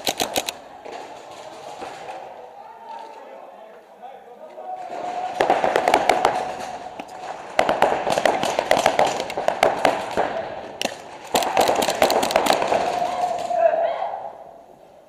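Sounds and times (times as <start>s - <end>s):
paintball markers firing: 0.0s - 1.0s, 5.4s - 13.5s.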